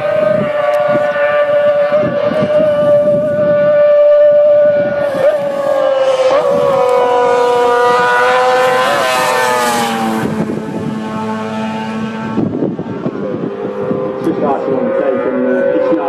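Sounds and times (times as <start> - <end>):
deeper engine note: 0.0 - 16.0
racing engines screaming at high revs: 0.0 - 16.0.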